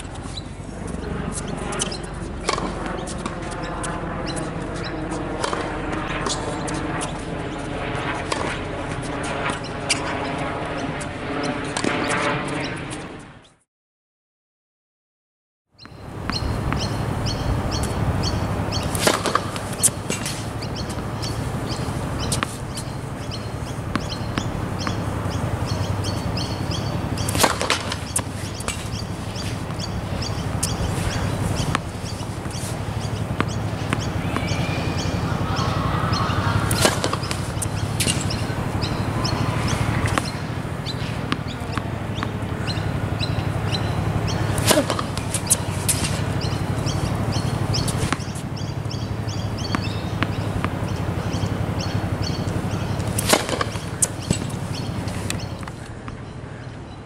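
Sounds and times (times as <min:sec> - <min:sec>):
steady background hum: 0:00.0 - 0:13.4, 0:15.9 - 0:57.0
racket hitting tennis ball: 0:01.0 - 0:03.6, 0:05.4 - 0:07.2, 0:15.9 - 0:56.2
ball bouncing: 0:01.3 - 0:04.5, 0:15.8 - 0:56.2
small birds chirping: 0:15.8 - 0:56.8.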